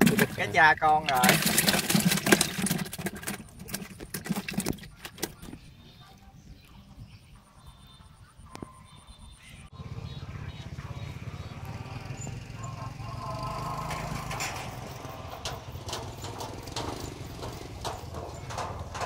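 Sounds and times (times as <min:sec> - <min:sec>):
small engine running: 0:09.7 - 0:18.9.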